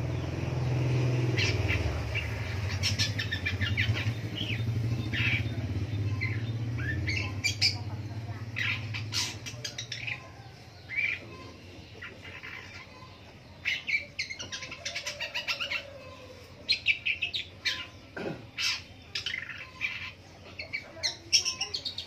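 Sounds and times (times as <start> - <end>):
bird singing high chattering notes: 0.0 - 15.9, 16.6 - 22.0.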